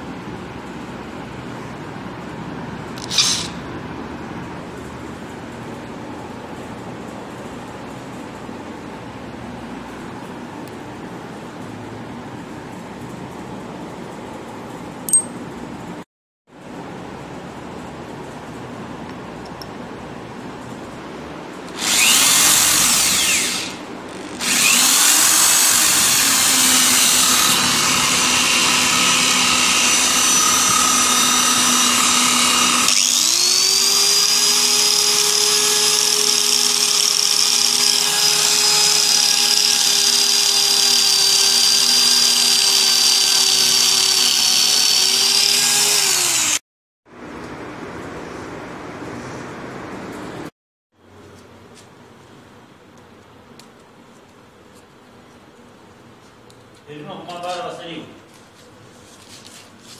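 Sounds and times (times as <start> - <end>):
electric drill running: 3.0 - 3.6, 21.7 - 46.6
angle grinder whine: 21.7 - 46.6.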